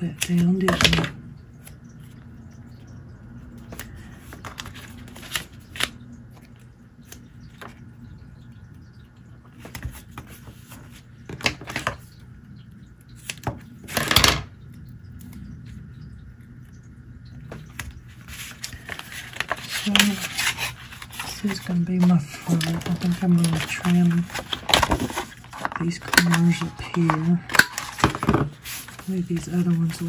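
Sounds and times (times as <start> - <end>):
paper rustling and tapping: 9.6 - 12.1, 17.5 - 30.0
low hum: 14.5 - 30.0.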